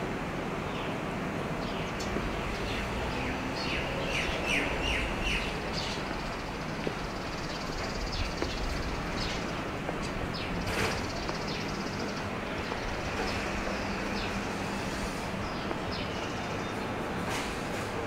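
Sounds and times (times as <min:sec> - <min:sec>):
passing traffic hum: 0:00.0 - 0:18.0
birds chirping: 0:01.6 - 0:17.5.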